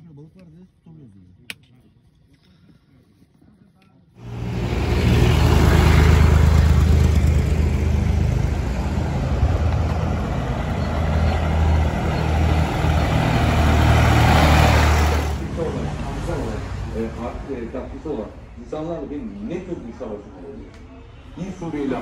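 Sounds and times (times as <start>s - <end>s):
vehicle engine droning: 4.2s - 19.8s.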